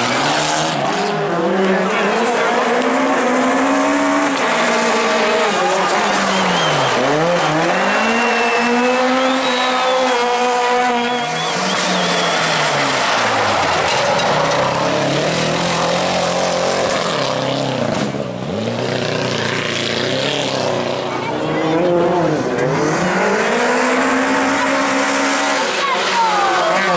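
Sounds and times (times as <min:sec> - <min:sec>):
rally car engines revving: 0:00.0 - 0:26.9.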